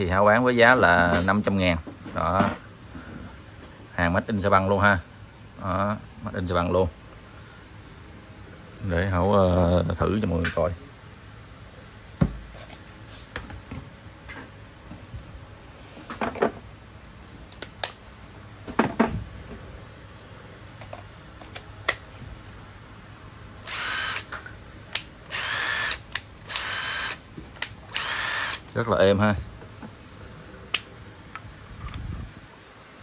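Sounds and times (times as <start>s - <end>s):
screwdriver motor whining: 23.6s - 24.3s, 25.2s - 27.2s, 27.9s - 28.6s.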